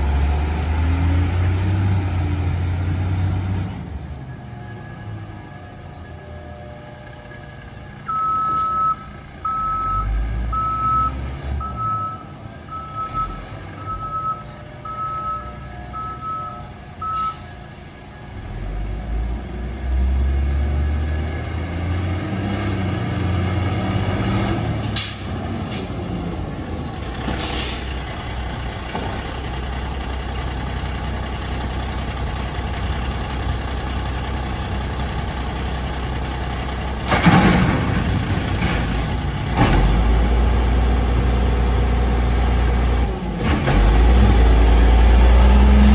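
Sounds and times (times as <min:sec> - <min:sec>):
reverse alarm beeping: 0:07.0 - 0:17.5
diesel engine running: 0:17.9 - 0:45.9
air brake hisses: 0:27.1 - 0:28.0.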